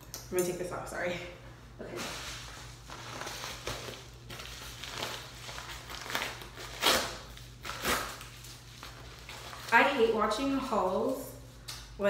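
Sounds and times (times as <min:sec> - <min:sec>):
paper ripping: 0:02.8 - 0:09.8.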